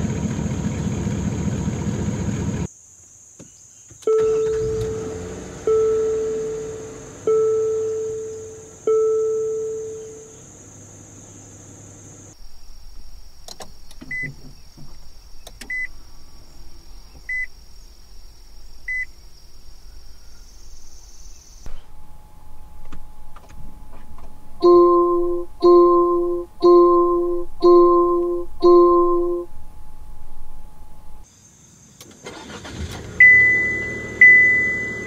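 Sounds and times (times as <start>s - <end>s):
soft short dashboard beeps: 4.1s - 10.3s, 14.1s - 14.4s, 15.6s - 15.9s, 18.9s - 19.1s, 21.7s - 29.6s, 33.2s - 35.0s
faint high whine: 4.1s - 10.4s, 12.3s - 31.2s
loud dashboard chimes: 4.1s - 10.5s, 12.5s - 20.0s, 21.3s - 31.2s, 32.4s - 35.0s.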